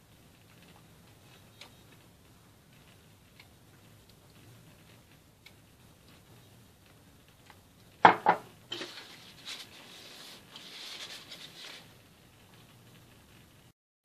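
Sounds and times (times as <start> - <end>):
glass knocking on marble: 8.0 - 8.5
faint scraping and rubbing: 8.7 - 11.9.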